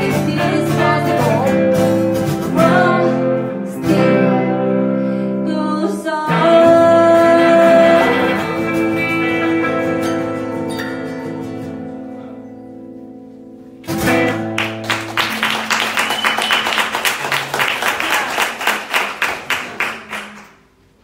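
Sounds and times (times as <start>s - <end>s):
acoustic and electric guitar chord: 0.0s - 15.3s
people clapping: 14.0s - 20.9s.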